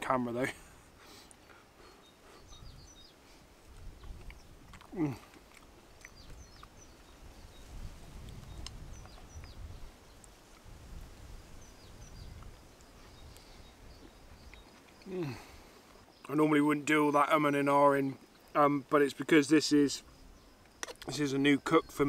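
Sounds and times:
faint birds chirping: 0.0s - 22.0s
quiet eating: 0.1s - 22.0s
man humming mmm: 4.9s - 5.4s, 15.0s - 15.6s.

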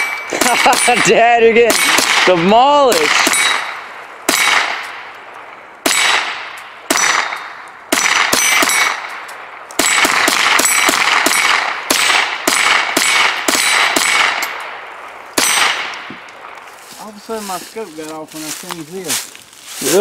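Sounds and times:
bullets clanging on steel targets: 0.0s - 2.0s, 2.9s - 4.6s, 8.3s - 11.6s, 12.5s - 14.7s
rifle shots: 0.0s - 16.6s.

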